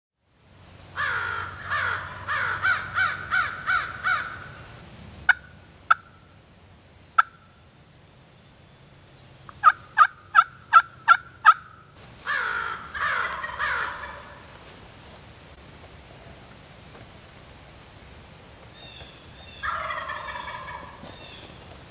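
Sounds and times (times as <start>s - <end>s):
turkey gobbling: 1.0s - 4.6s, 5.3s - 6.2s, 7.2s - 7.4s, 9.6s - 14.5s, 19.6s - 21.2s
turkey yelps: 1.0s - 4.6s, 9.6s - 14.4s, 19.6s - 21.5s
turkey clucks: 5.3s - 6.2s, 7.2s - 7.4s, 9.5s - 11.8s, 12.7s - 14.6s, 19.6s - 21.6s.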